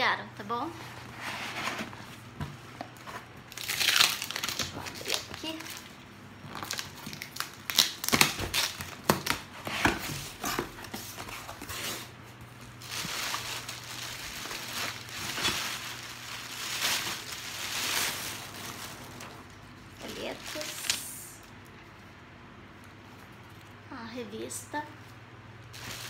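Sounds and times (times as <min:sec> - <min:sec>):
packaging crinkling: 0:02.8 - 0:21.7, 0:25.7 - 0:26.0.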